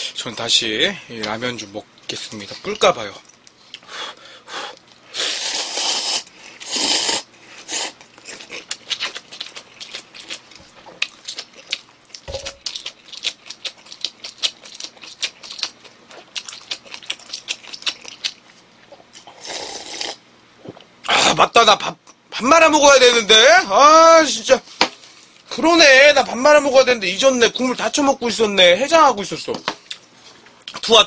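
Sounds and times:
slurping noodles: 0:05.1 - 0:09.1, 0:19.3 - 0:20.2
wet chewing and smacking: 0:08.0 - 0:19.2.

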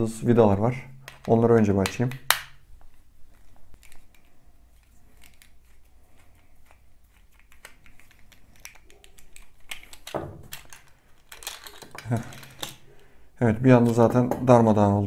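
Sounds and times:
plastic toy being handled: 0:01.0 - 0:13.0.

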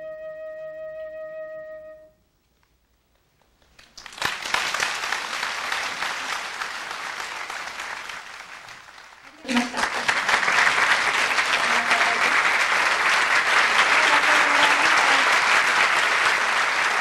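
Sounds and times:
audience applause: 0:03.4 - 0:17.0.

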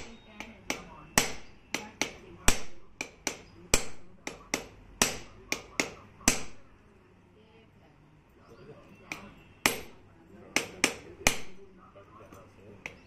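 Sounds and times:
hammer beating on metal: 0:00.0 - 0:06.7, 0:09.0 - 0:11.7.

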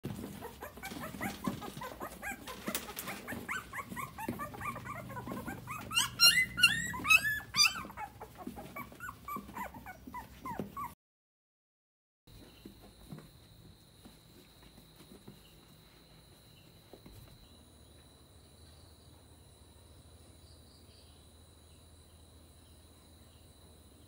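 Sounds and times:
dog whimpering and yipping: 0:00.1 - 0:11.0.

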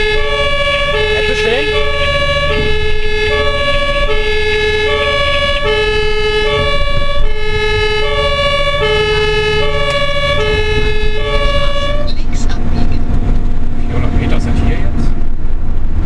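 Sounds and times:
two-tone ambulance siren: 0:00.0 - 0:12.3
engine and road rumble: 0:00.0 - 0:16.0.

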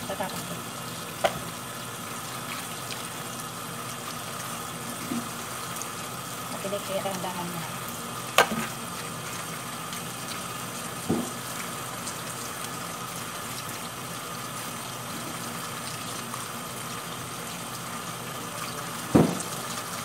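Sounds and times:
tap water splashing: 0:01.2 - 0:01.6, 0:02.3 - 0:03.1, 0:03.9 - 0:05.9, 0:08.3 - 0:13.9, 0:18.6 - 0:20.0
dull thump: 0:11.1 - 0:11.3, 0:19.2 - 0:19.4.

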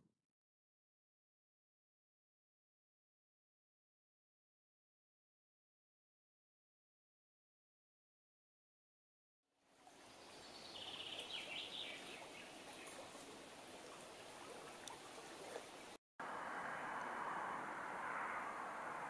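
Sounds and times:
bird chirps: 0:10.2 - 0:13.1
rushing noise: 0:16.2 - 0:19.0.

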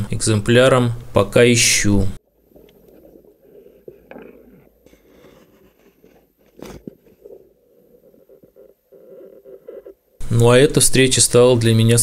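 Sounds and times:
underwater crackling and rustling: 0:02.2 - 0:10.3.

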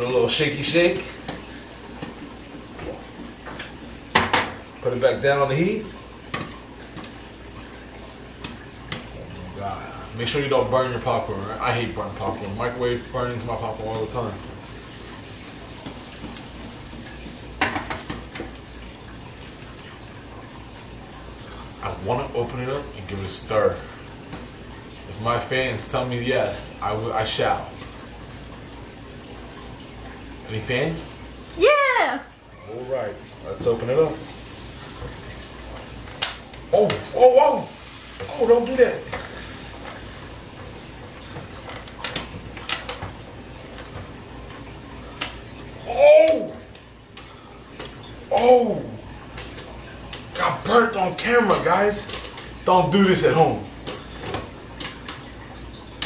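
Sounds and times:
popcorn popping: 0:00.0 - 0:04.7, 0:13.9 - 0:20.2, 0:33.4 - 0:43.2
low steady hiss: 0:00.0 - 0:56.0
pan sizzling: 0:00.0 - 0:56.0.

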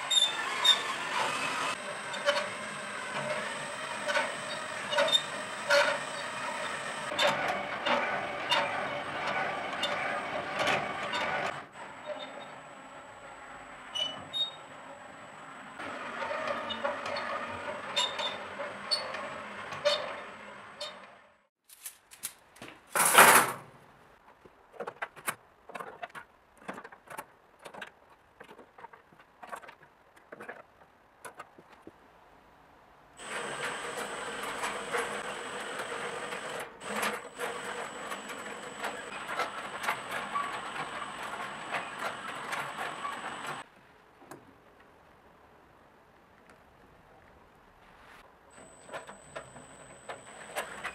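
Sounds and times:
drill turning steel gears: 0:00.0 - 0:12.6, 0:33.2 - 0:43.6.

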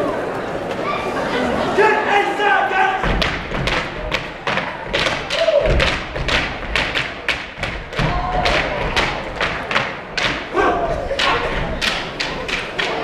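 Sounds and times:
people shouting calls: 0:00.8 - 0:03.2, 0:10.5 - 0:11.6
canes striking wooden floor: 0:03.0 - 0:13.0
feet stomping: 0:03.0 - 0:13.0.

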